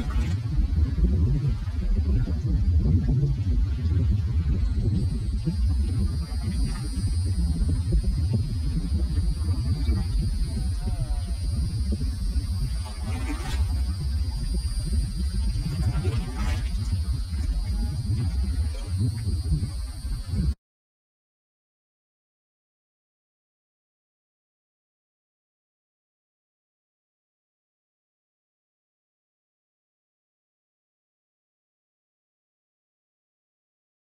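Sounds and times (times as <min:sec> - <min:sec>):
faint high-pitched drone: 0:00.0 - 0:20.6
wind rumbling on microphone: 0:00.0 - 0:20.6.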